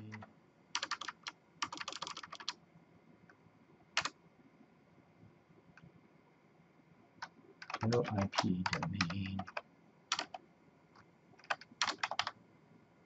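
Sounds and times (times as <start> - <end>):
typing on computer keyboard: 0.8 - 2.6, 7.6 - 10.4, 11.4 - 12.4.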